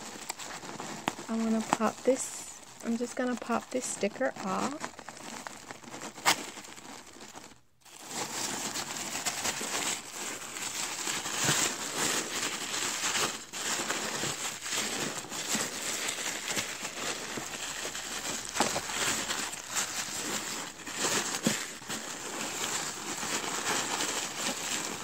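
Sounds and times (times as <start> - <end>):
tissue paper rustling and crinkling: 0.0 - 25.0.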